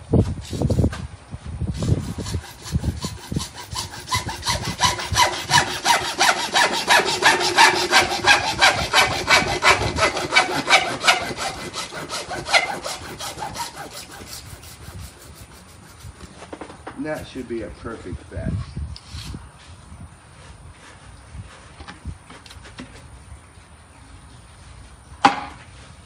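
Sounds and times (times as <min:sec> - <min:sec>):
hacksaw cutting plastic pipe: 0:01.8 - 0:16.3.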